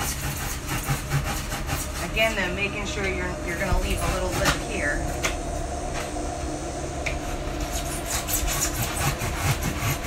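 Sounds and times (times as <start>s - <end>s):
blade scraping styrofoam: 0.0s - 2.6s, 7.6s - 10.0s
steady low hum: 0.0s - 10.0s.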